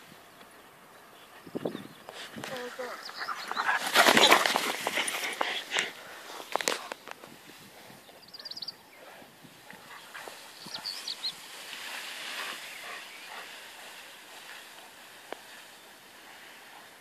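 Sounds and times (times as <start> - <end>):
grain stalks rustling: 9.8 - 17.0.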